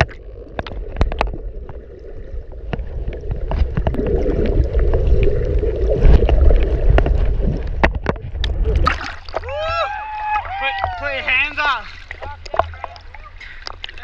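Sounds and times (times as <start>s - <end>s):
muffled underwater rumble: 0.0s - 11.0s.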